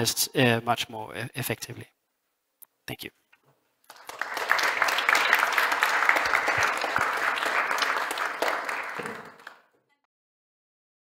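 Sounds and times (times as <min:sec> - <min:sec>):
audience applauding: 0:03.9 - 0:09.7.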